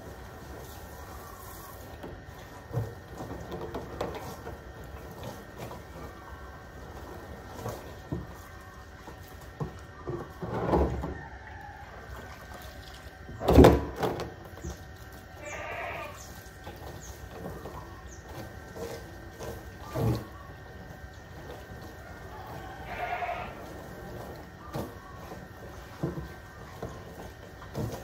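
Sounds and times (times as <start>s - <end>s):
goats bleating: 15.4s - 16.3s, 22.4s - 24.0s.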